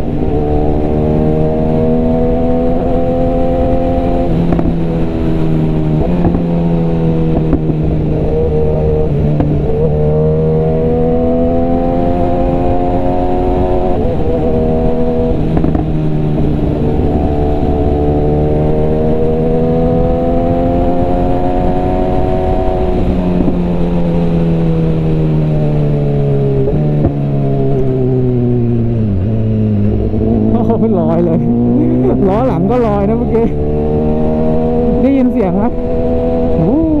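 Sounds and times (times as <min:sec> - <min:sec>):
motorcycle engine revving: 0:00.0 - 0:37.0.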